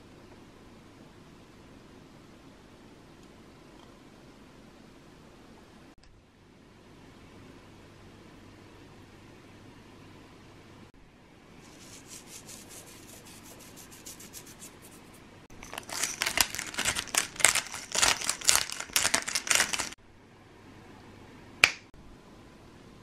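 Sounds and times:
pepper mill grinding clicks: 0:15.6 - 0:20.0
finger snap: 0:21.6 - 0:21.9.

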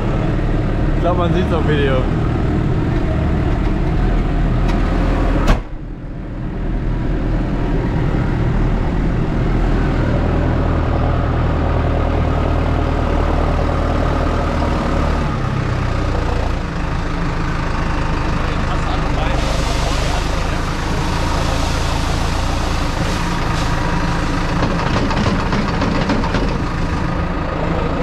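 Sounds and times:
tractor engine running: 0:00.0 - 0:28.0.

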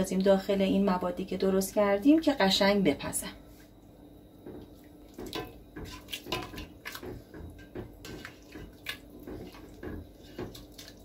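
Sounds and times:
broth sloshing in pot: 0:03.6 - 0:11.0.

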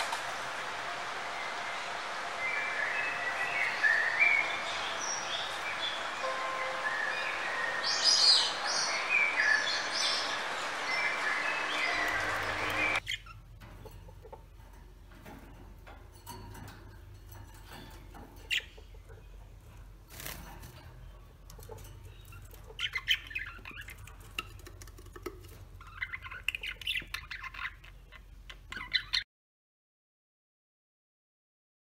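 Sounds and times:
budgerigars chirping and chattering: 0:02.5 - 0:14.5, 0:17.4 - 0:20.4, 0:21.1 - 0:29.2.

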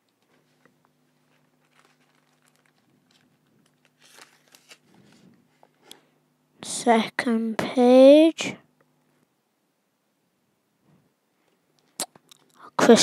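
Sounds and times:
plastic page crinkling: 0:00.3 - 0:05.6.

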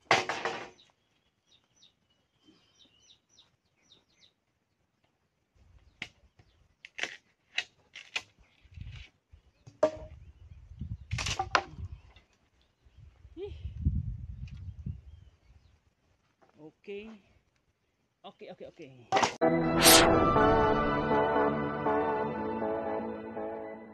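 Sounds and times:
bamboo cracking and snapping: 0:06.8 - 0:09.1.

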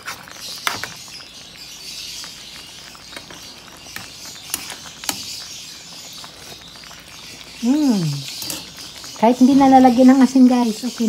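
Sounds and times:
stew simmering in a pan: 0:00.0 - 0:11.0.

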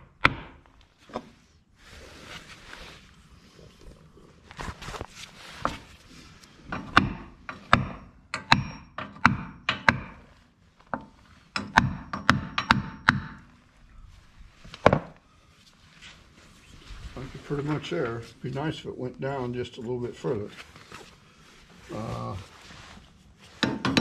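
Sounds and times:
hammer striking metal: 0:06.7 - 0:10.2, 0:11.6 - 0:13.4.

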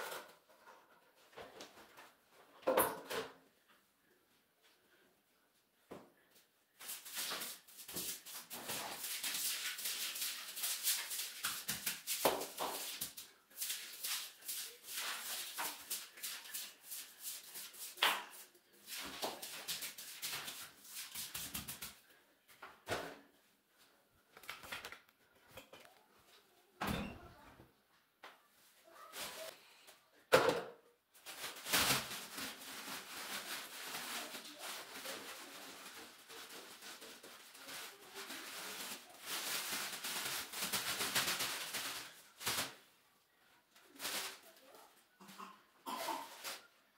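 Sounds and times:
broom scrubbing wet tile floor: 0:06.8 - 0:22.1, 0:29.0 - 0:29.6, 0:31.2 - 0:42.8.

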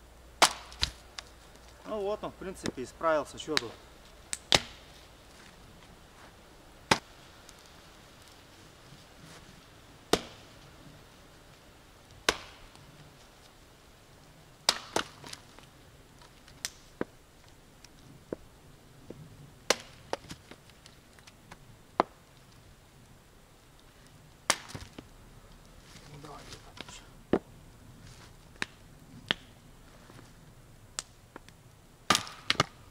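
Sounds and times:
axe chopping into wood: 0:00.4 - 0:01.0, 0:04.4 - 0:04.8, 0:06.9 - 0:07.1, 0:10.1 - 0:10.4, 0:12.2 - 0:12.6, 0:14.7 - 0:15.4, 0:19.7 - 0:20.3, 0:24.5 - 0:24.9, 0:32.1 - 0:32.8.

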